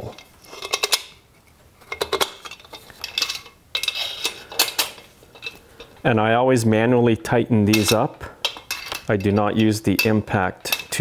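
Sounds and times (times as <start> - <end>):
metal parts clinking and rattling: 0.1 - 1.2, 1.8 - 6.0, 7.7 - 11.0.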